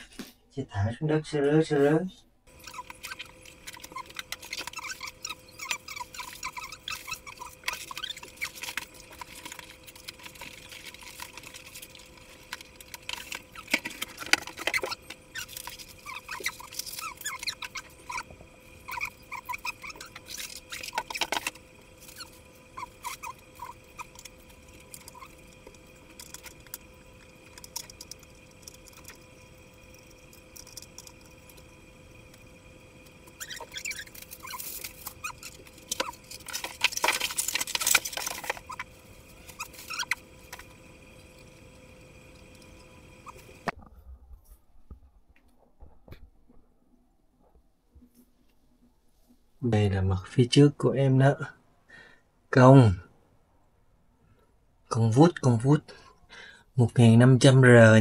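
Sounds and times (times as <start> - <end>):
faint steady hum: 0.0 - 58.0
styrofoam squeaking and creaking: 2.5 - 43.8
cardboard and packaging rustling: 33.5 - 40.6.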